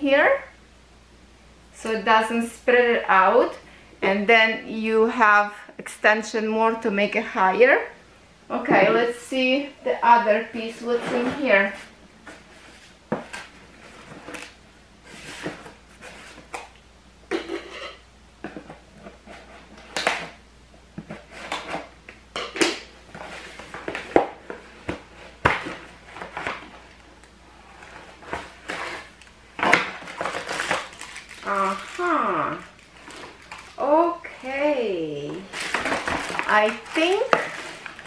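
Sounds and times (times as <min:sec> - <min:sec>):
cardboard and tape tearing: 0:28.1 - 0:34.0, 0:35.4 - 0:38.0.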